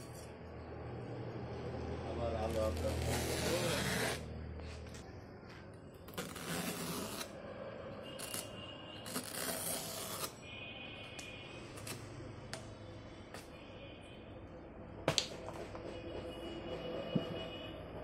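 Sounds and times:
knife slicing rubber tyre: 2.5s - 4.3s.

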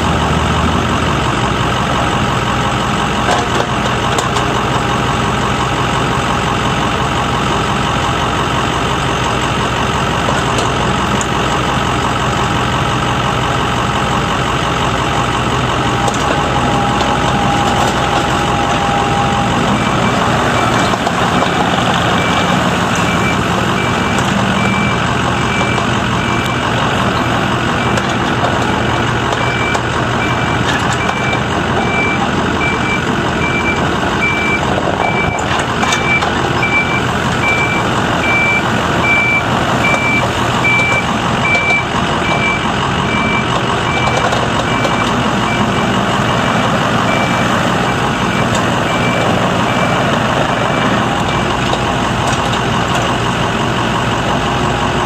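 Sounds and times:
excavator diesel engine running: 0.0s - 55.0s
travel alarm beeping: 15.9s - 21.1s, 22.1s - 28.0s, 29.4s - 50.1s.

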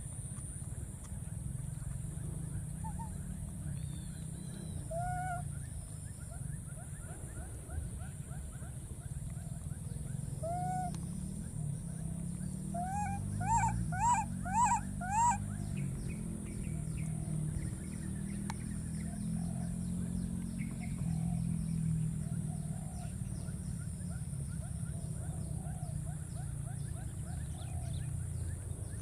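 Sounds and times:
baby monkeys crying: 12.8s - 15.4s.

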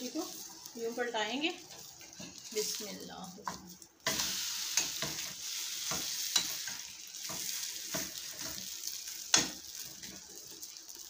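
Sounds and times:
pancake sizzling in hot oil: 0.0s - 11.0s
spatula scraping and knocking pan: 1.7s - 10.3s.

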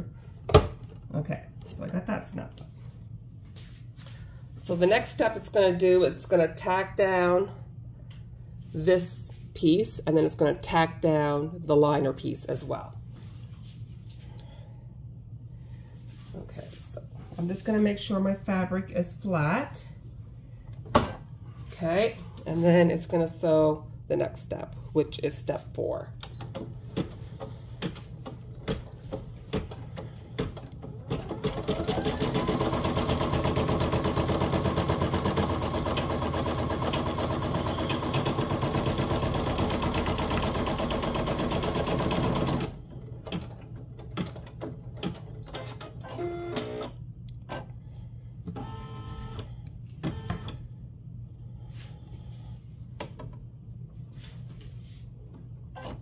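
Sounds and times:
embroidery machine stitching: 29.6s - 46.8s.

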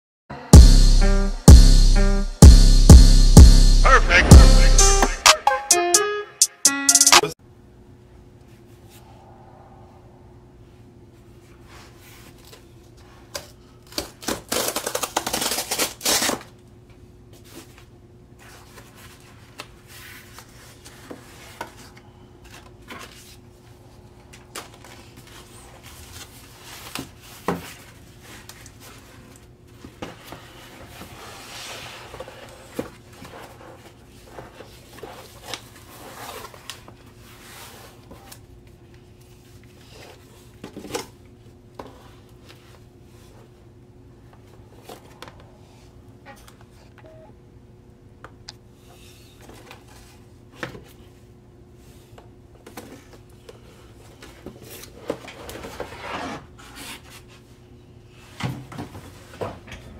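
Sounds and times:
cardboard ripping: 14.0s - 16.5s
cardboard rustling and scraping: 54.1s - 57.5s.

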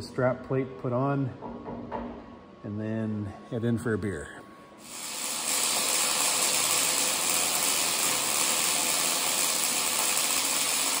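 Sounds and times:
arc welding crackling hiss: 4.8s - 11.0s.

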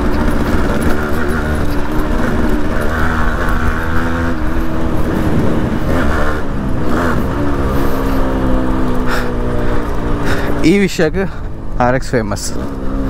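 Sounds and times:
motorcycle engine revving: 0.0s - 13.0s
wind rumble on microphone: 3.5s - 6.8s.

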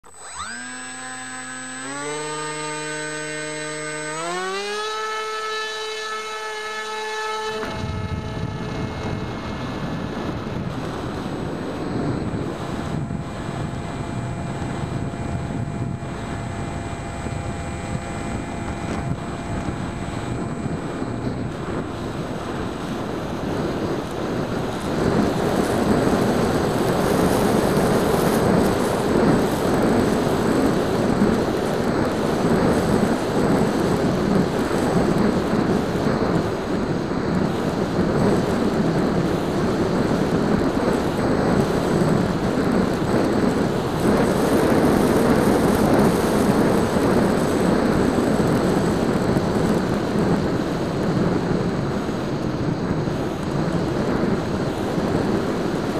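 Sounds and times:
electric motor spinning propeller: 0.0s - 55.9s
wind rushing over microphone: 0.0s - 55.9s.

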